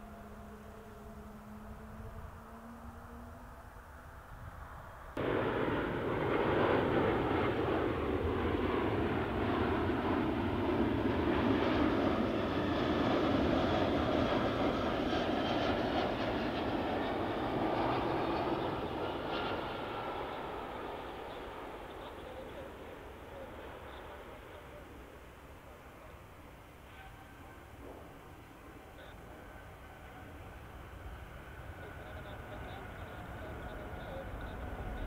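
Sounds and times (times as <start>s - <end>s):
jet airliner engine noise: 0.0s - 35.0s
faint hum: 16.4s - 35.0s.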